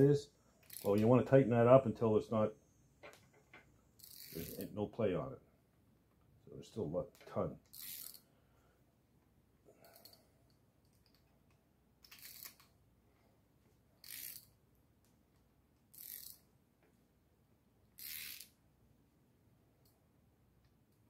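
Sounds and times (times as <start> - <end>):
socket ratchet clicking: 0.6 - 0.9, 4.0 - 4.6, 7.6 - 8.2, 12.0 - 12.7, 14.0 - 14.6, 15.9 - 16.4, 18.0 - 18.6.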